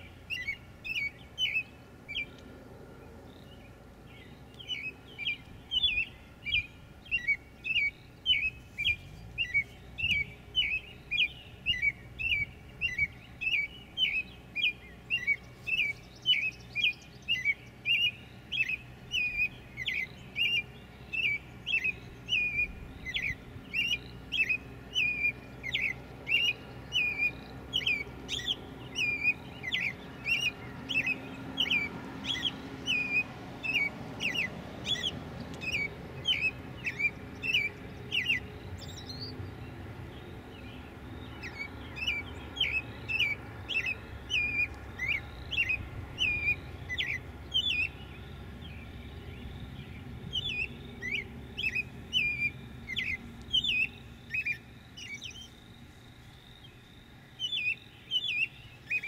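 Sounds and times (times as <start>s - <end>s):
small animal high chirping: 41.4s - 47.9s.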